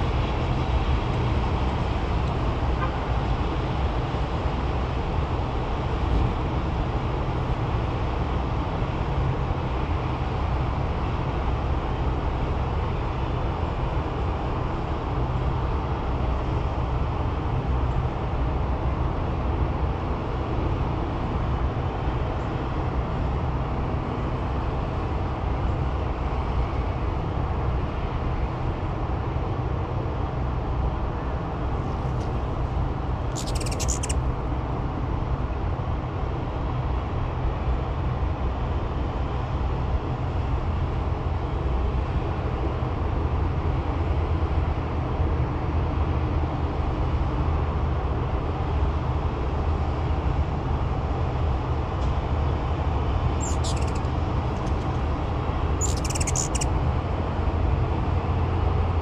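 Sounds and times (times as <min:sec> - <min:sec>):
low outdoor rumble: 0:00.0 - 0:59.0
hummingbird wing ticks: 0:33.4 - 0:34.2, 0:53.4 - 0:55.0, 0:55.8 - 0:56.7.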